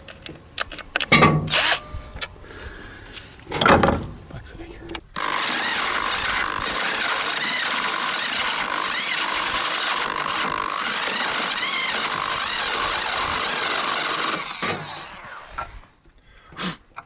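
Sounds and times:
power drill boring into wood: 5.2 - 15.9.

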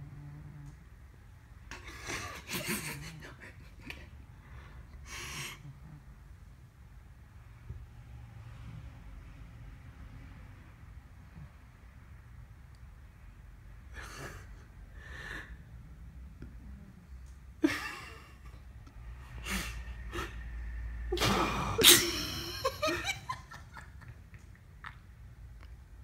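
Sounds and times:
person stifling laughter: 1.7 - 4.1, 21.8 - 24.2
person laughing loudly: 1.8 - 4.1, 21.8 - 24.2.

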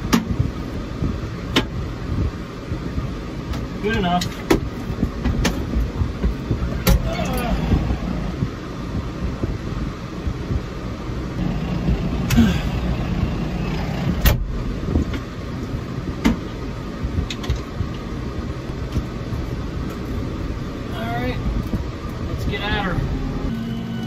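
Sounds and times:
sharp clicks and knocks: 0.0 - 0.4, 1.5 - 1.8, 3.5 - 7.1, 14.1 - 16.5, 17.2 - 18.0
tractor engine running: 0.0 - 24.0.

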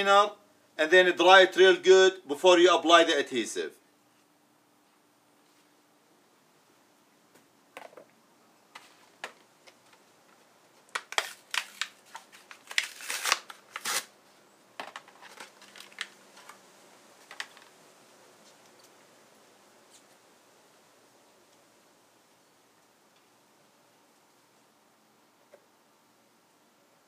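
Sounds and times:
cardboard rustling: 14.8 - 16.5.

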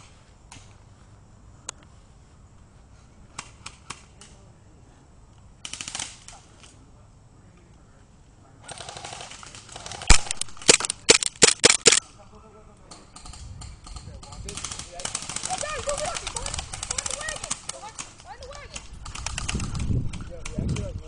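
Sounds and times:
loud sharp cracks: 5.6 - 6.4, 8.9 - 12.0
airsoft gun firing: 8.8 - 12.0.

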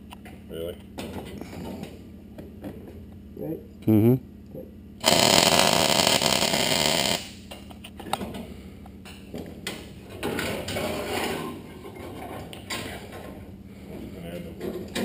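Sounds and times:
welder arc crackling: 5.0 - 7.5.

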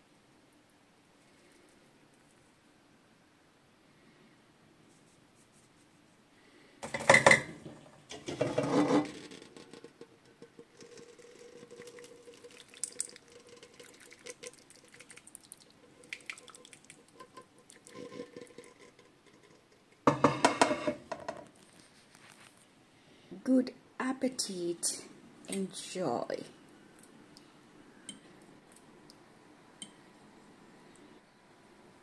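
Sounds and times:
faint steady hum: 0.0 - 32.0
utensil clinking and scraping: 6.8 - 12.6, 17.0 - 21.4.

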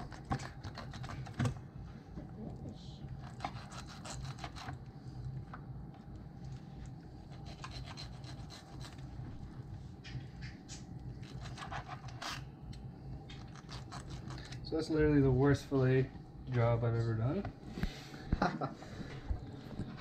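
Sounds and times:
low steady hum: 0.0 - 20.0
knife sawing through fish flesh: 3.2 - 4.8, 7.3 - 9.0, 11.2 - 12.4.

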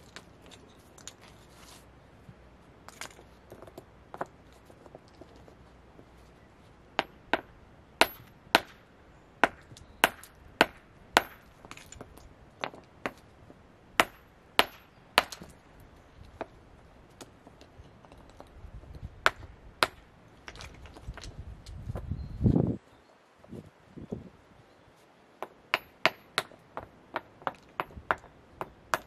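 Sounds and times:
hammer striking stone: 7.0 - 8.8, 9.4 - 13.2, 14.0 - 15.5, 25.4 - 29.0.

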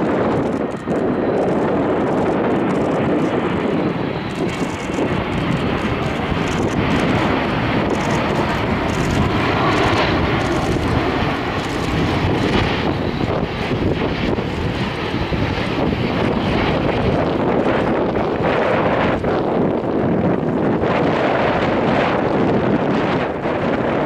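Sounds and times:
airliner jet engines roaring: 0.0 - 24.0.

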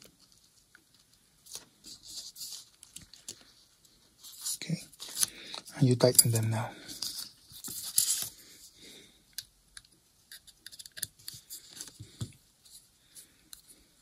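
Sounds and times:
screwdriver clicks and scrapes: 9.8 - 11.4.

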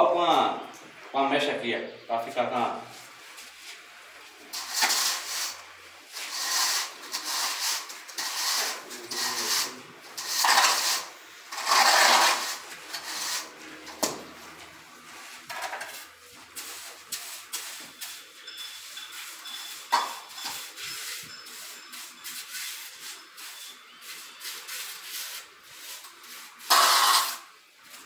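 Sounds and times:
metal bar scraping mortar: 4.5 - 14.1, 26.0 - 27.5.

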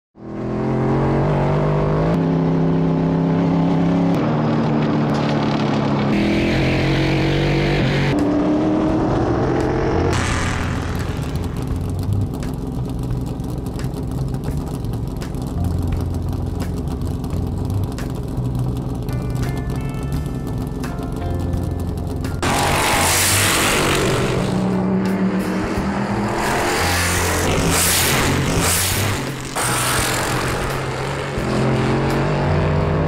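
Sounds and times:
race car engine at high revs: 0.2 - 19.2, 21.6 - 33.0.

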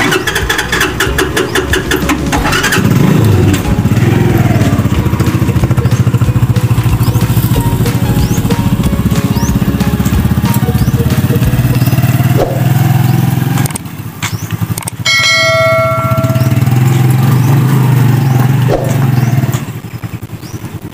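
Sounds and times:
motorcycle engine running: 0.0 - 20.9
bright bell chime: 15.1 - 17.4.

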